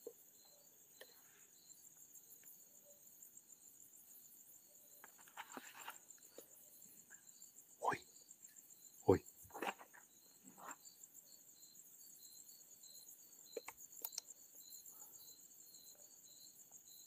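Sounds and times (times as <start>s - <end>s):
crickets chirping: 0.0s - 17.0s
faint clicks: 13.5s - 14.4s.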